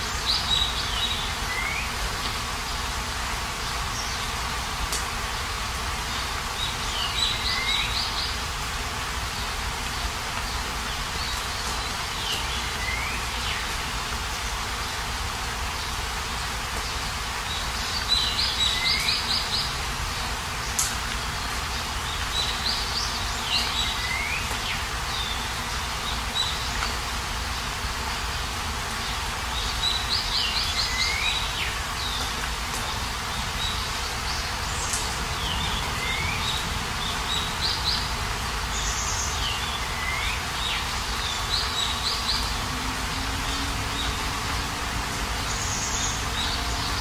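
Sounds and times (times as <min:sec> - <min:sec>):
bird singing: 0:00.0 - 0:02.0, 0:06.1 - 0:08.4, 0:09.4 - 0:14.6, 0:16.8 - 0:19.8, 0:20.6 - 0:26.9, 0:29.0 - 0:47.0
steady rain falling: 0:00.0 - 0:47.0.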